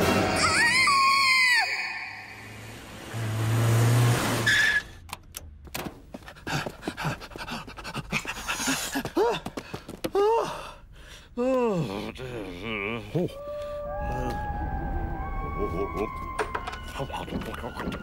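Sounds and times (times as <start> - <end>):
cartoon music: 13.3 - 18.0
gliding tone rising and falling: 13.3 - 18.0.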